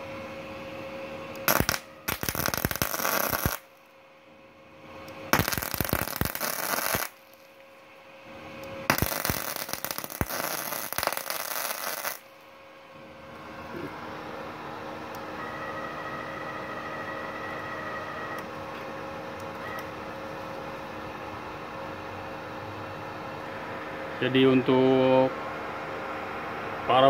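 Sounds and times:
welding arc crackling: 0:01.4 - 0:03.8, 0:05.0 - 0:07.6, 0:08.6 - 0:12.4.

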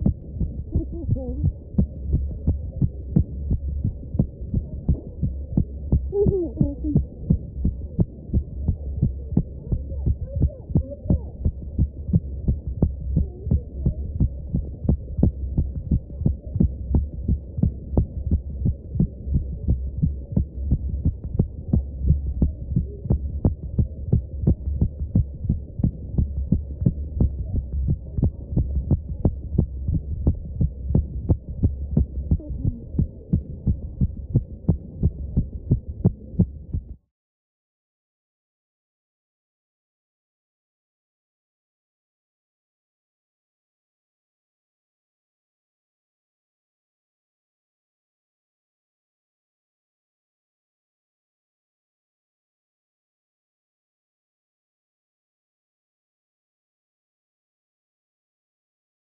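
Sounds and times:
steady low hum: 0:00.0 - 0:37.0
heartbeat through stethoscope: 0:00.0 - 0:37.1.

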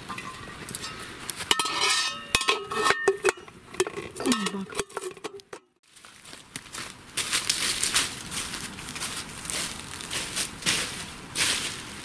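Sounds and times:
metal lid clinking on pot: 0:00.0 - 0:05.6.

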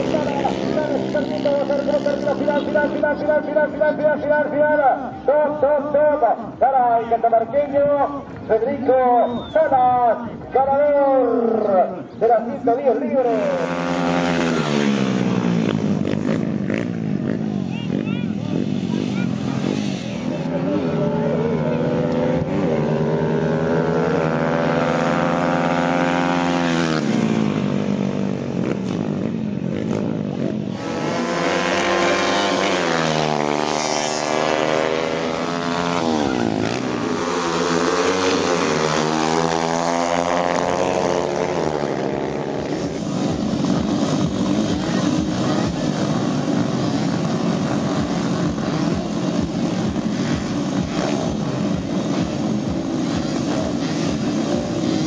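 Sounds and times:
motorcycle engines revving: 0:00.0 - 0:55.0
low engine hum: 0:13.5 - 0:55.0.

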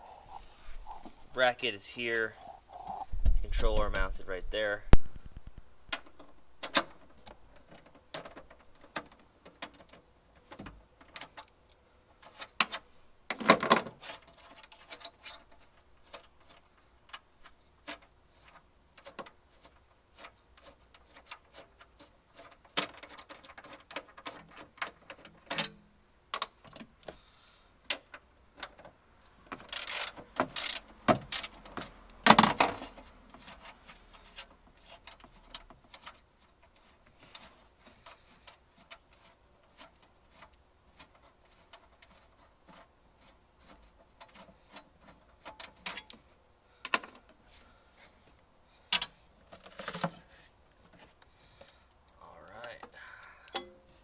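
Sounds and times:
metal bolts clattering: 0:10.6 - 0:11.5
socket ratchet clicking: 0:29.7 - 0:31.6.

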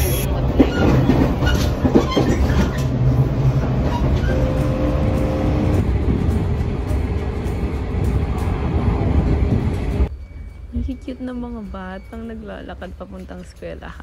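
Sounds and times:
train rumbling: 0:00.0 - 0:14.0.

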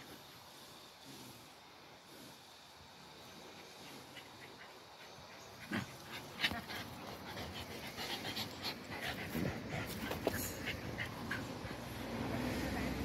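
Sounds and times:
dogs panting: 0:03.2 - 0:12.5
dogs making sharp sounds: 0:03.7 - 0:12.2.

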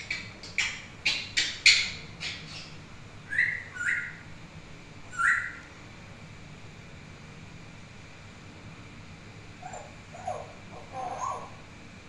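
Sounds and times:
parrot clicking: 0:00.0 - 0:02.4
parrot whistled calls: 0:01.0 - 0:04.3, 0:05.1 - 0:05.7.

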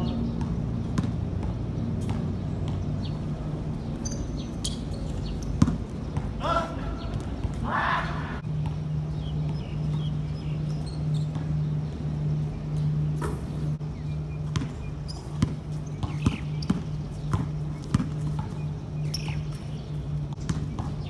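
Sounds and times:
steady low hum: 0:00.0 - 0:21.0
basketball bouncing on hard court: 0:00.4 - 0:03.2, 0:04.0 - 0:06.4, 0:08.6 - 0:10.2, 0:11.2 - 0:11.6, 0:14.4 - 0:19.5, 0:20.4 - 0:21.0.

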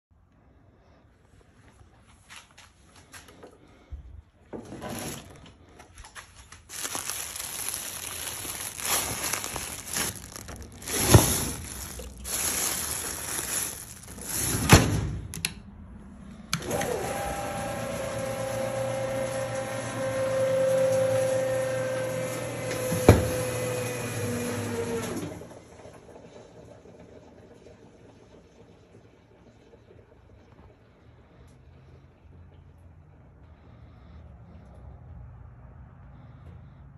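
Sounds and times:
plastic bags crinkling and thumping: 0:06.0 - 0:15.0, 0:22.8 - 0:23.5.

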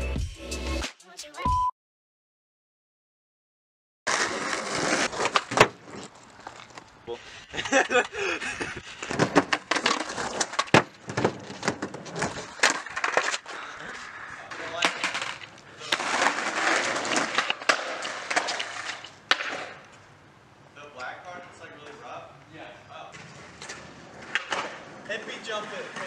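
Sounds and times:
skateboard wheels rolling: 0:04.1 - 0:20.2, 0:23.1 - 0:26.0
skateboard clacks: 0:09.0 - 0:19.9, 0:23.2 - 0:26.0.

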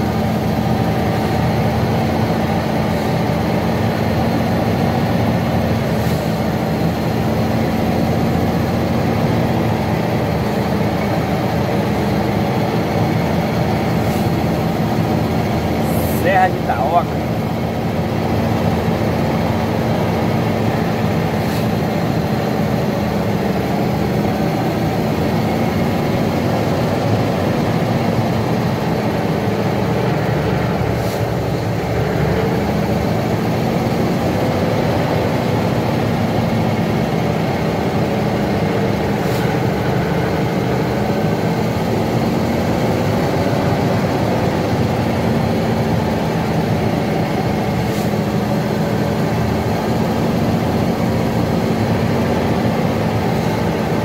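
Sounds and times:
truck diesel engine running: 0:00.0 - 0:54.0.

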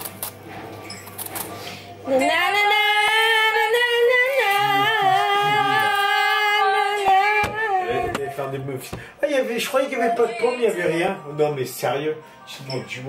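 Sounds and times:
woman singing unaccompanied: 0:02.0 - 0:08.9, 0:09.6 - 0:13.0.

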